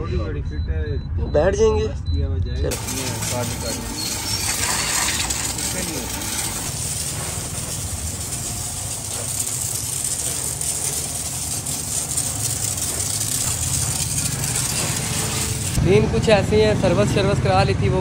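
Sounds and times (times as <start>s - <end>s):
motor humming: 2.7s - 15.8s
even hiss: 2.7s - 16.2s.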